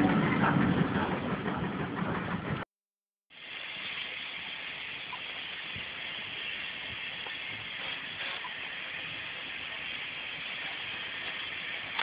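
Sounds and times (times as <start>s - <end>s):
train rumble: 0.0s - 2.7s, 4.4s - 12.0s
steam hissing: 3.3s - 12.0s.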